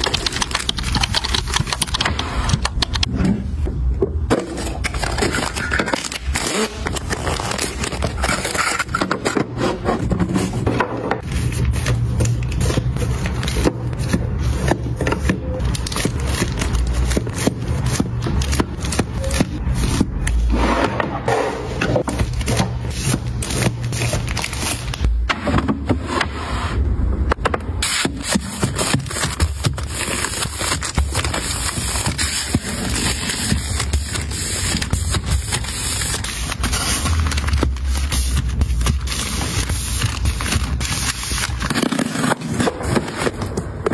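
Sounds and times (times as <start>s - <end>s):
plastic boxes tapping and clicking: 0.0s - 3.1s, 11.9s - 20.4s.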